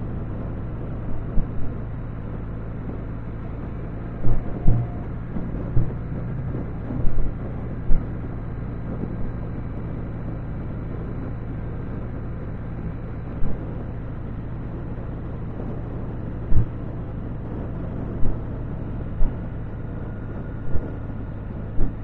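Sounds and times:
engine drone: 0.0s - 22.0s
road and wind noise: 0.0s - 22.0s
thumps on the microphone: 4.2s - 8.1s, 16.5s - 16.8s.

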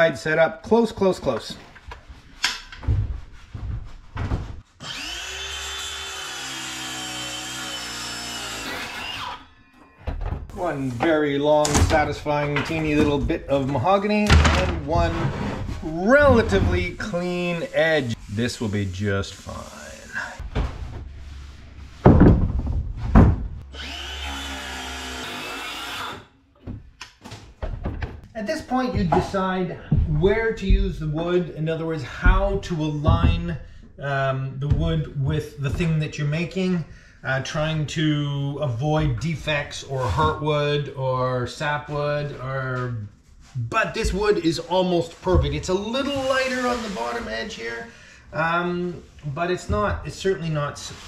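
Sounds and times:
circular saw cutting wood: 4.8s - 9.5s, 23.7s - 26.3s
thumps: 22.0s - 23.6s, 32.1s - 33.8s.

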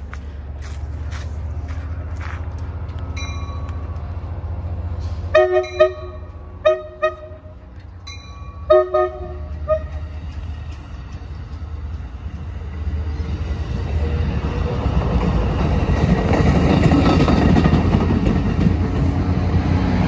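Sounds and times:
train rumbling past: 0.0s - 20.0s
train horn short toots: 5.3s - 7.6s, 8.6s - 10.2s.

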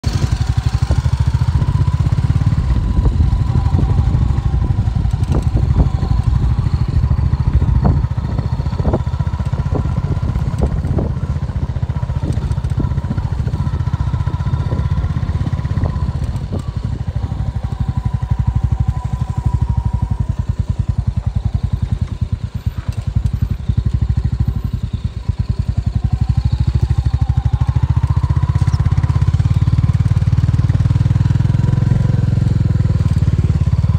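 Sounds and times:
motorcycle engine running: 0.0s - 33.9s.

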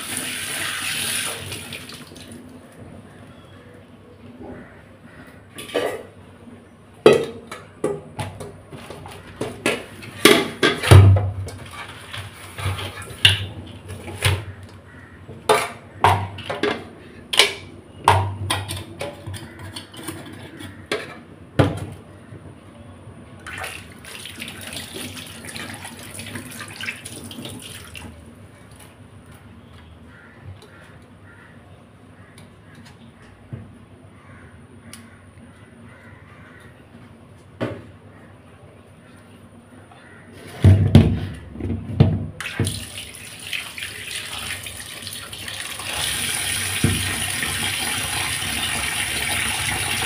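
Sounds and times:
tap water running: 0.0s - 2.4s, 23.5s - 28.2s, 42.4s - 50.0s.

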